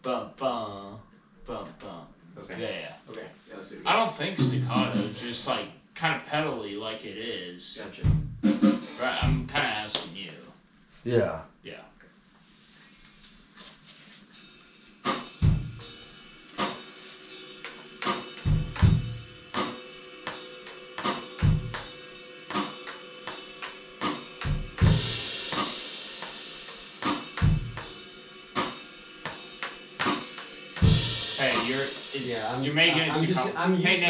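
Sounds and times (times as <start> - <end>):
drum kit groove: 3.9 - 5.6, 7.8 - 10.5, 13.3 - 34.0
kick drum pairs: 8.1 - 8.4
cymbal wash: 15.3 - 34.0.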